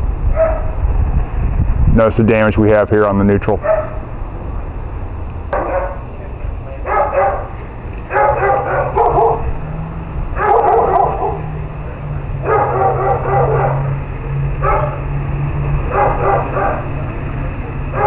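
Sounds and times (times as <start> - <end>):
low rumble: 0.0 - 2.7
dog barking: 0.4 - 0.7, 3.6 - 4.0, 5.5 - 6.0, 6.9 - 7.5, 8.1 - 9.5, 10.4 - 11.5, 12.4 - 14.0, 14.6 - 17.1.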